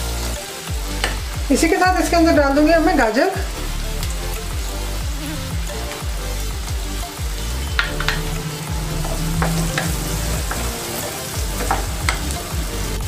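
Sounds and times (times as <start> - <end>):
vegetables sizzling in butter: 0.0 - 13.0
spatula scraping and tapping pan: 7.8 - 12.4.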